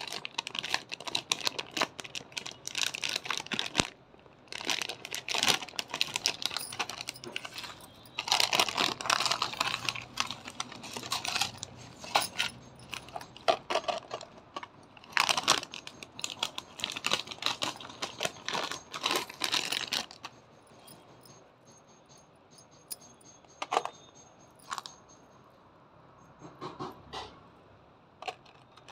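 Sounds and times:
plastic packaging crinkling: 0:00.0 - 0:21.0.

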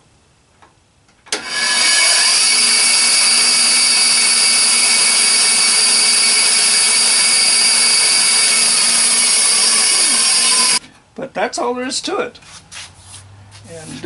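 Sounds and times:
band saw running: 0:01.3 - 0:10.8.

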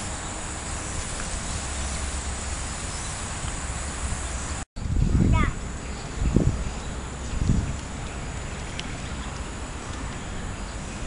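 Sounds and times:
insects droning: 0:00.0 - 0:04.6.

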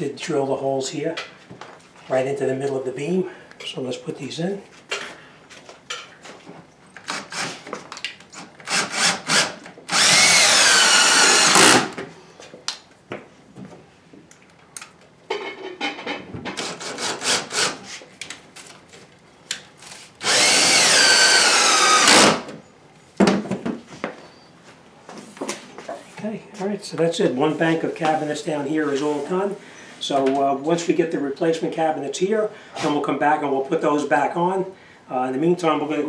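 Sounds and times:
cordless drill driving screws: 0:08.6 - 0:12.0, 0:20.2 - 0:22.5.

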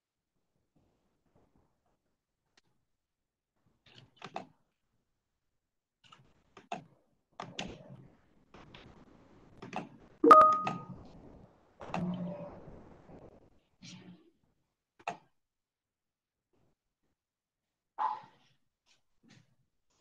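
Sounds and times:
short beep: 0:10.2 - 0:10.8.

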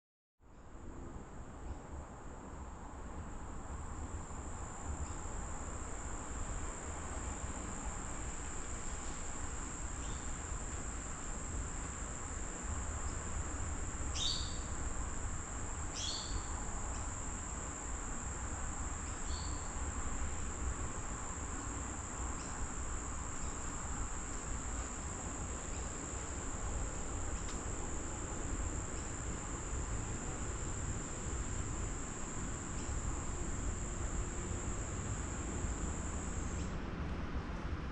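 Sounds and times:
insects droning: 0:02.0 - 0:37.9.

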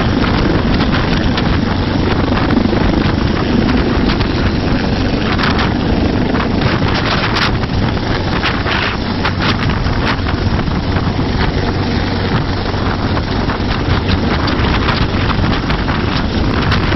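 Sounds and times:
helicopter hovering: 0:00.0 - 0:16.9
wind buffeting microphone: 0:00.0 - 0:16.9.

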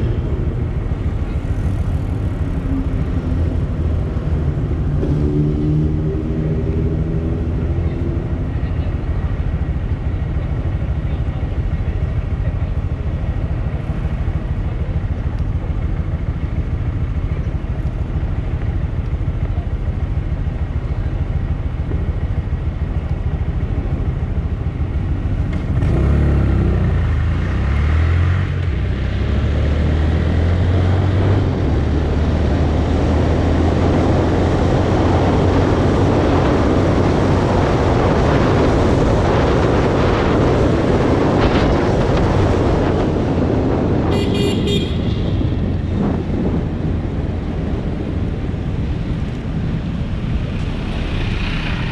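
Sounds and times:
motorcycle engine: 0:00.0 - 0:51.9
wind and road noise: 0:00.0 - 0:51.9.

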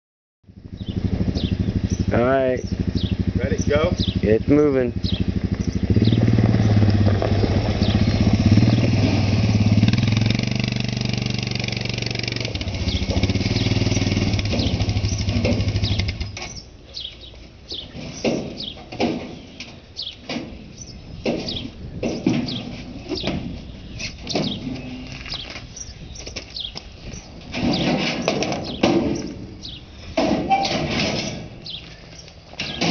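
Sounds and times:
quad bike engine running: 0:00.5 - 0:17.1
birds chirping: 0:00.6 - 0:32.9
knocks: 0:18.2 - 0:19.4.

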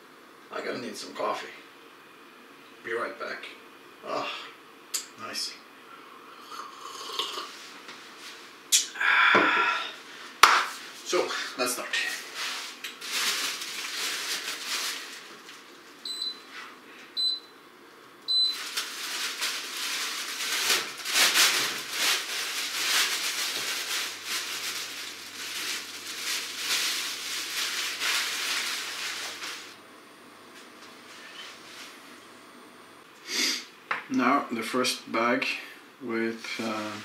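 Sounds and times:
plastic bag rustling: 0:11.9 - 0:16.7, 0:18.4 - 0:29.8
snow pouring into metal pot: 0:18.6 - 0:29.8.

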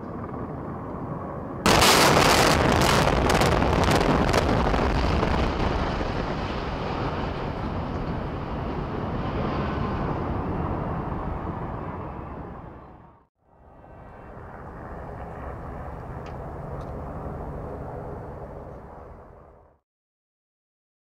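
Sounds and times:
explosive charges cracking: 0:01.7 - 0:07.5
building collapse rumble: 0:01.7 - 0:09.0.

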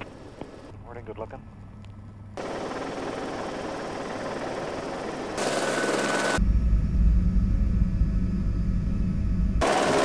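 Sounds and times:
low rapid rotor chop: 0:02.4 - 0:06.4, 0:09.6 - 0:10.0
helicopter running: 0:02.4 - 0:10.0.

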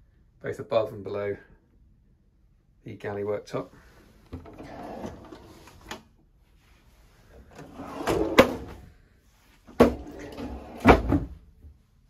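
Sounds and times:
drawer sliding on metal runners: 0:04.2 - 0:06.0, 0:07.3 - 0:08.8, 0:09.7 - 0:11.3.

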